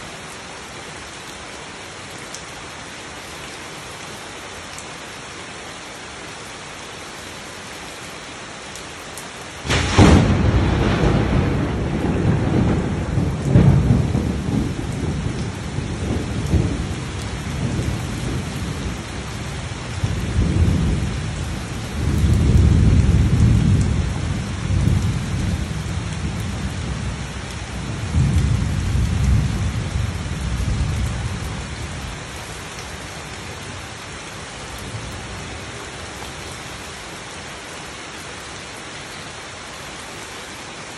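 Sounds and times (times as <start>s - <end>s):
heavy rain on foliage: 0.0s - 40.9s
thunder rumbling: 9.6s - 32.4s.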